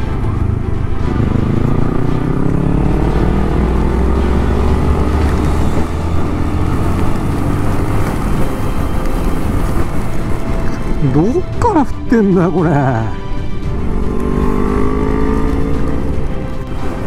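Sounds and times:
motorcycle engine accelerating: 0:00.0 - 0:10.9, 0:13.4 - 0:17.0
wind rush on microphone: 0:05.4 - 0:11.6.

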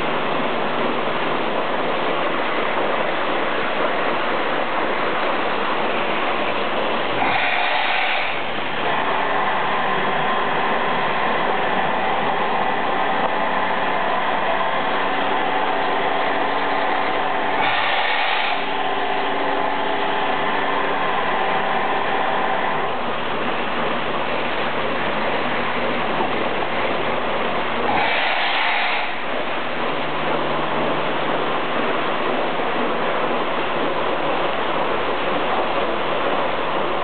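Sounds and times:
rushing water and air: 0:00.0 - 0:37.0
milking machine humming: 0:07.2 - 0:29.6.

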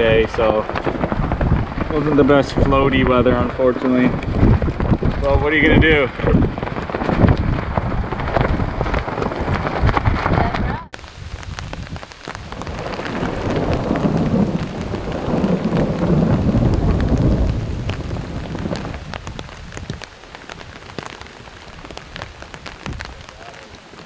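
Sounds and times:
rain drops ticking: 0:00.0 - 0:24.0
thunder rolling: 0:00.0 - 0:24.0.

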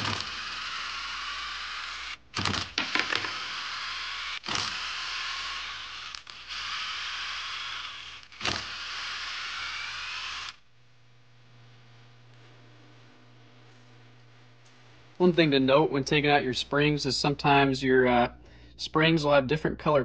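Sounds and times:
cordless driver motor whine: 0:00.0 - 0:10.6.

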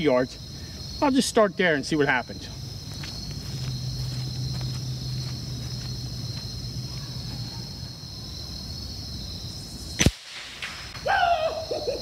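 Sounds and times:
air rifle shot crack: 0:10.0 - 0:11.1.

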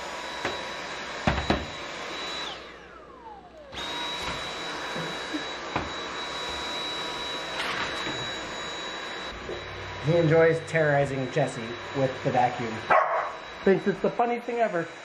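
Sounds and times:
vacuum cleaner whining: 0:00.0 - 0:15.0.

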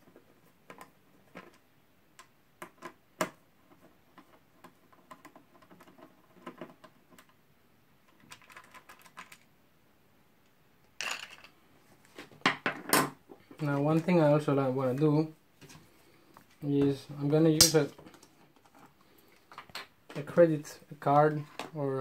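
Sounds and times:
parts clattering into plastic cup: 0:11.0 - 0:11.6.

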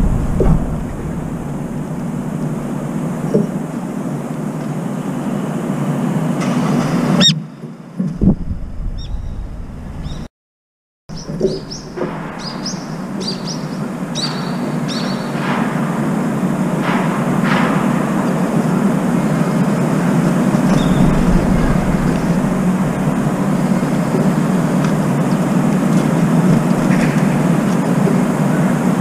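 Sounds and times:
loud rumbling noise: 0:00.0 - 0:07.2, 0:08.1 - 0:10.3, 0:11.1 - 0:29.0
faint bird calls: 0:11.1 - 0:15.4.

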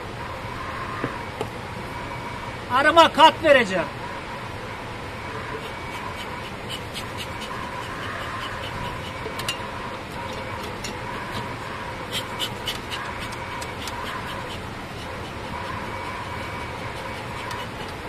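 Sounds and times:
bees buzzing: 0:05.2 - 0:18.0.

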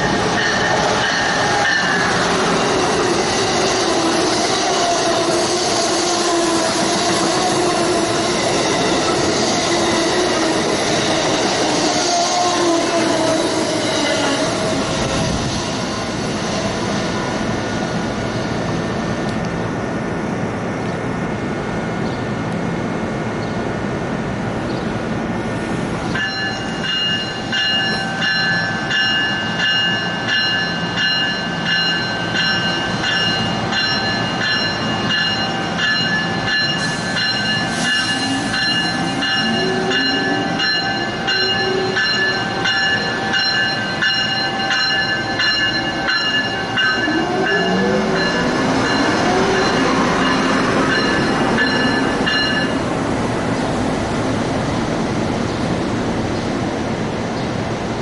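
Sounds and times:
locomotive bell ringing: 0:00.0 - 0:05.0, 0:26.2 - 0:52.9
train rolling: 0:00.0 - 0:58.0.

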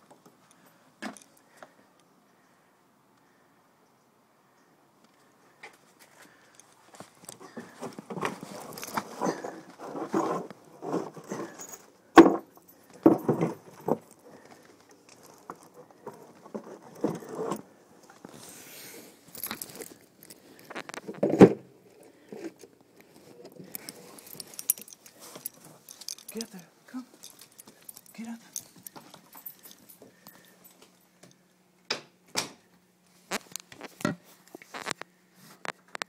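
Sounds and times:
jangling: 0:08.4 - 0:16.4, 0:19.3 - 0:20.8, 0:23.6 - 0:31.4.

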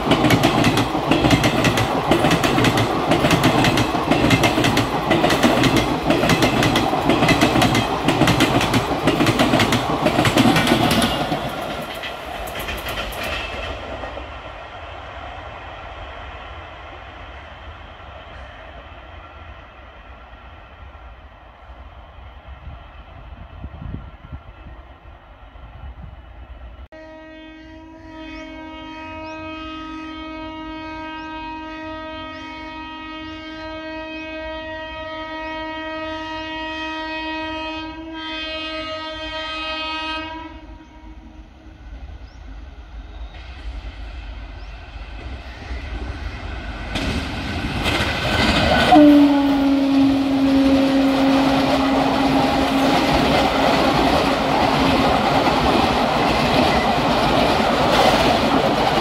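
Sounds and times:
train passing at speed: 0:00.0 - 0:59.0
locomotive horn blast: 0:26.9 - 0:41.2, 0:48.8 - 0:53.2.

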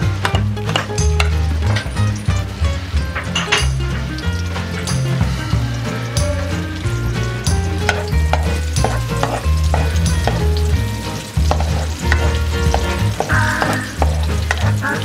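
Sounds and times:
onion sizzling in hot oil: 0:00.0 - 0:15.0
wooden spatula scraping pan: 0:07.9 - 0:10.5, 0:11.2 - 0:14.8.

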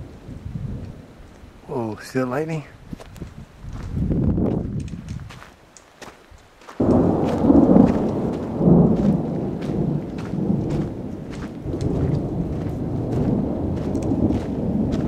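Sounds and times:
thunder rumbling: 0:06.8 - 0:15.0.

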